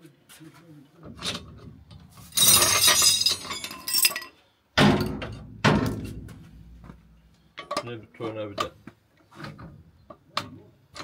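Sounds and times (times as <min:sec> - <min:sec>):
steel hand tools clattering: 0:02.3 - 0:04.3.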